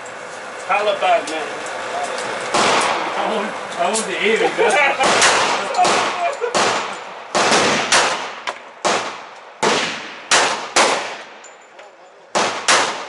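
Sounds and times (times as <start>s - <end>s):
pistol shots with echo: 5.0s - 11.4s, 12.3s - 13.0s.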